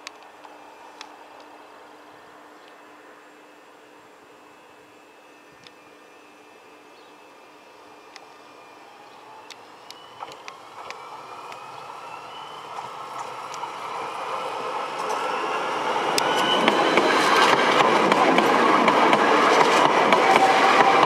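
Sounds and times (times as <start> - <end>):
tram motors whining: 0.0 - 21.0
sharp clicks from track: 9.4 - 11.7, 16.1 - 21.0.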